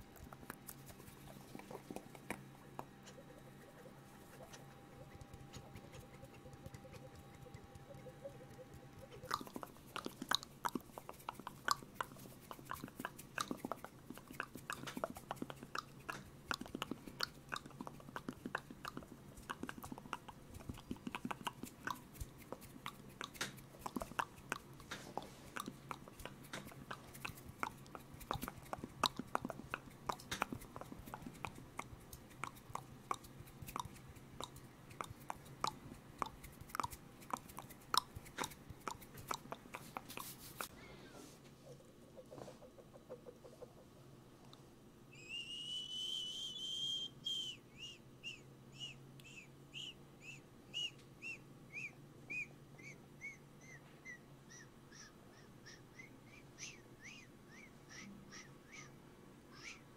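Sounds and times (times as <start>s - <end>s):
wet mouth clicks and smacks: 0.0s - 40.7s.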